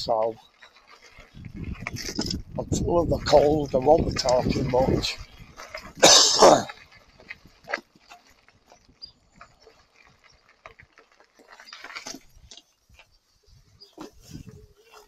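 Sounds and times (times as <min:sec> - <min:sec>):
bike clicks and rattles on gravel: 0:00.0 - 0:15.0
person clearing throat: 0:06.0 - 0:06.8.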